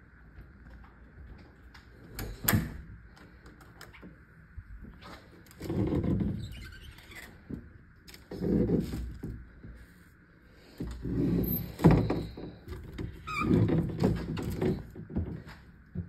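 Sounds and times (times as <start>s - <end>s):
closet doors rumbling: 10.8s - 15.6s.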